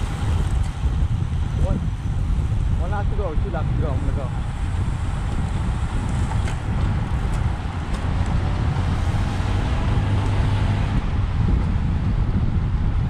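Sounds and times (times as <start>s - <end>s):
low rumble of road noise: 0.0s - 13.0s
wind buffeting microphone: 0.0s - 13.0s.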